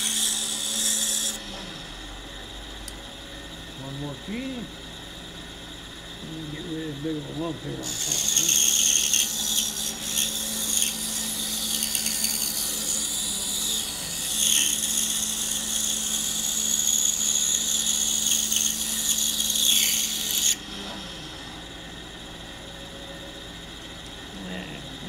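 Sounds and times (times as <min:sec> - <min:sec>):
band saw cutting wood: 0:00.0 - 0:02.5, 0:06.0 - 0:22.4
band saw motor hum: 0:00.0 - 0:25.0.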